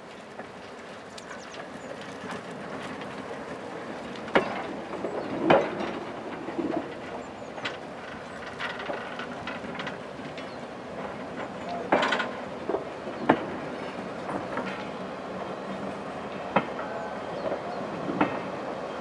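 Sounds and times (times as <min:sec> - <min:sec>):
train rumbling on track: 0:00.0 - 0:19.0
clanks and knocks: 0:04.2 - 0:13.6.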